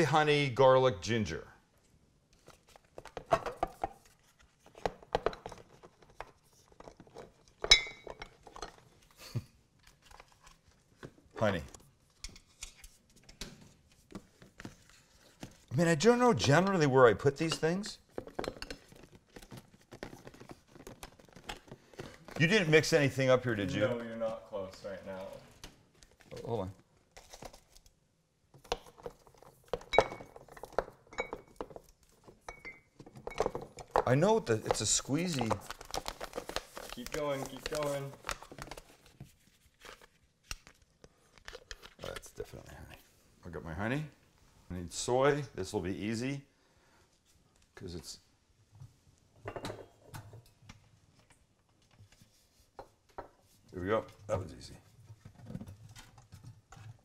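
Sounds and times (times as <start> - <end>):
glass jars and bottles clinking: 7.6 - 8.8, 29.9 - 31.8, 32.4 - 34.1
sharp glass clink: 7.7 - 8.1.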